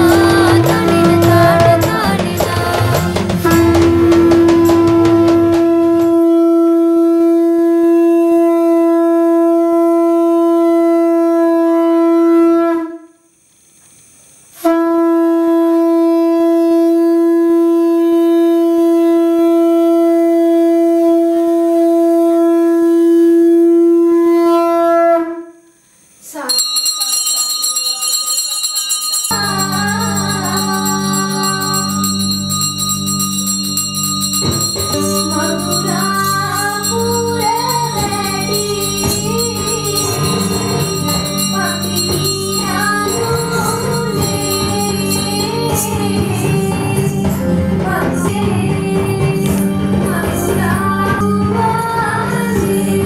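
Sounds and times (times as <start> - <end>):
music with drums: 0.0 - 6.4, 29.2 - 53.0
conch shell blasts: 0.0 - 13.2, 26.5 - 46.8.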